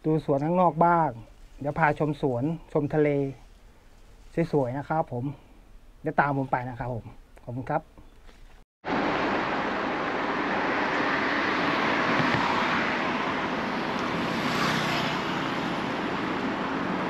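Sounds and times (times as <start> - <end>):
road traffic rush: 8.8 - 17.0.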